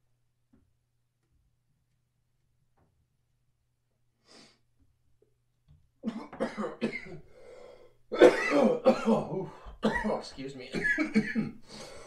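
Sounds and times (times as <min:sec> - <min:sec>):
man coughing: 0:06.0 - 0:07.2, 0:08.1 - 0:11.6.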